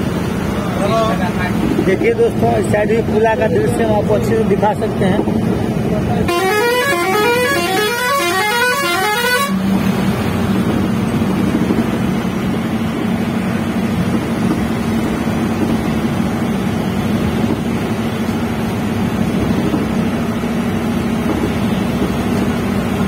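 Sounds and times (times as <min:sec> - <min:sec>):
bus engine drone: 0:00.0 - 0:23.0
road noise: 0:00.0 - 0:23.0
multi-tone vehicle horn: 0:06.2 - 0:09.8.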